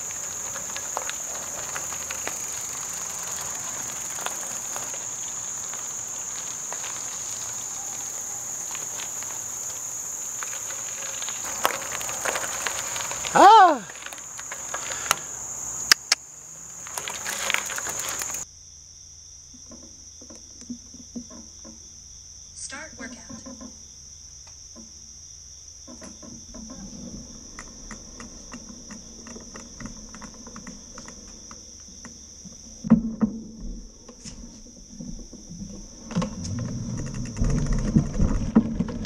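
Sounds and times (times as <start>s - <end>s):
bicycle rear wheel clicking: 0.0s - 18.4s
crickets chirring: 0.0s - 39.0s.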